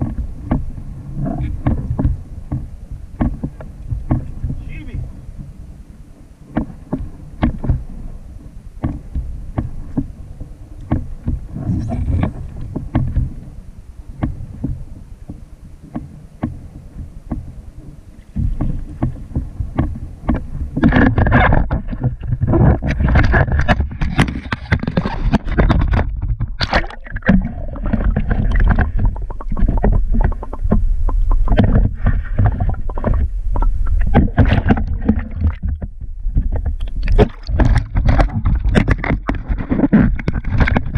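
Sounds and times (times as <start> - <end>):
water splashing against hull: 0.0 - 40.9
small knocks and clicks: 10.8 - 13.3, 18.2 - 40.9.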